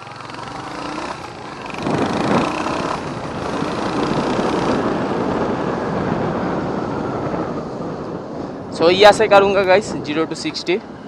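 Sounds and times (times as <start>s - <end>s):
motorcycle engine running: 0.0s - 5.9s
wind noise on microphone: 0.0s - 11.0s.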